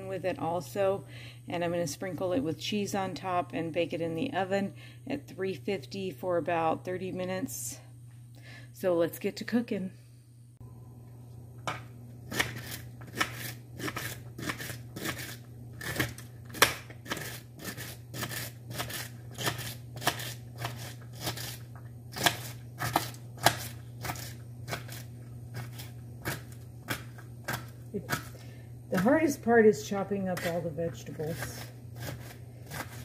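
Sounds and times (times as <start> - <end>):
steady low hum: 0.0 - 33.0
knife chopping on cutting board: 31.3 - 33.0.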